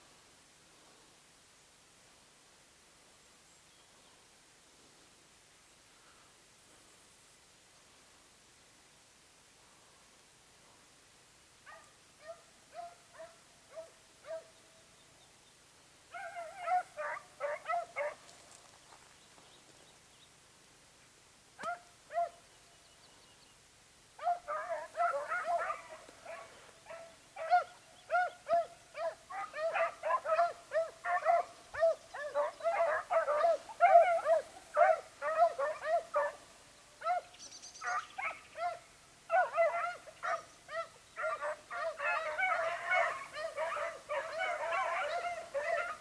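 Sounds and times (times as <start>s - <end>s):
hounds yelping: 16.1s - 18.6s, 24.2s - 36.4s, 37.0s - 46.0s.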